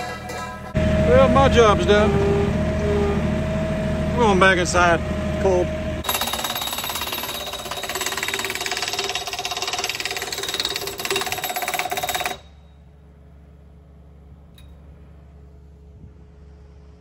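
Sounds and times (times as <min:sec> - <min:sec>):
tractor engine rattling: 0:00.0 - 0:02.3.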